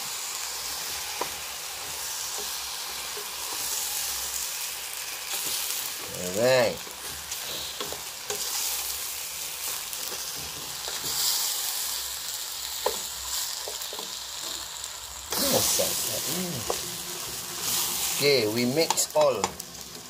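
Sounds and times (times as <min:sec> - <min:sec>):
rice sizzling in oil: 0:00.0 - 0:20.0
rice grains scraping: 0:15.3 - 0:20.0.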